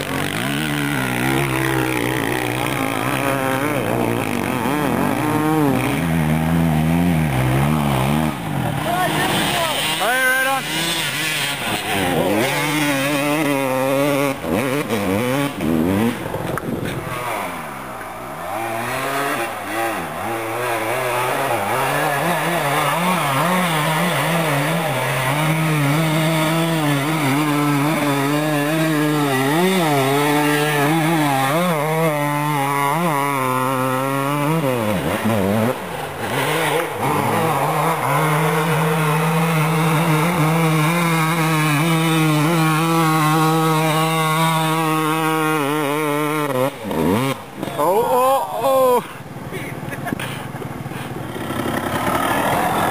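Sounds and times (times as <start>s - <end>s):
dirt bike engine revving: 0.0s - 52.9s.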